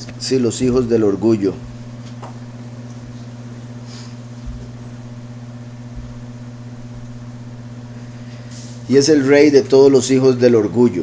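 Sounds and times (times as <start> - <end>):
low electrical hum: 0.0 - 11.0
soft low thumps: 0.6 - 2.6, 4.4 - 7.6.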